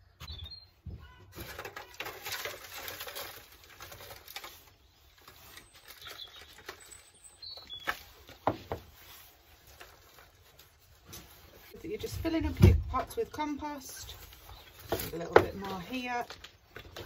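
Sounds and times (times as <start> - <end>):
bird chirps: 0.0 - 1.3, 4.8 - 8.4
compost rustling into tray: 1.3 - 17.0.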